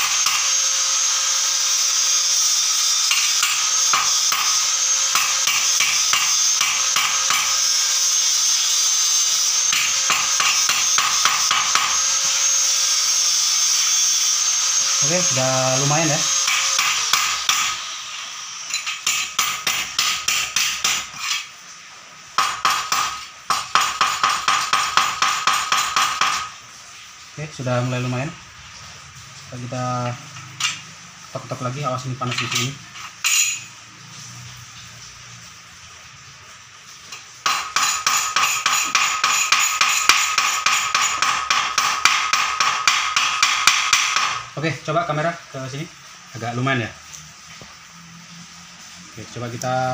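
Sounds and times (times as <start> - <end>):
hammer tapping on metal: 22.4 - 26.5, 37.4 - 44.4.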